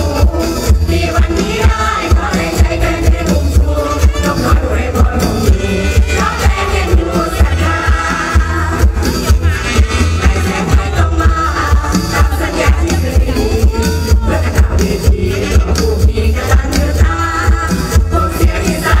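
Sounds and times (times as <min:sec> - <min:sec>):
heavy steady drum beat: 0:00.0 - 0:19.0
live band music: 0:00.0 - 0:19.0
person singing: 0:00.0 - 0:19.0.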